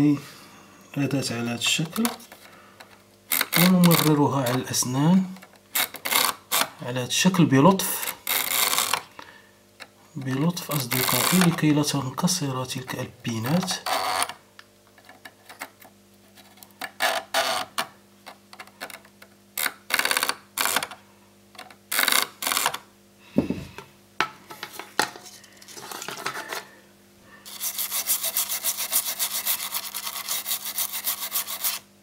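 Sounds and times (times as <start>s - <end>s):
toothbrush scrubbing: 27.5s - 31.8s.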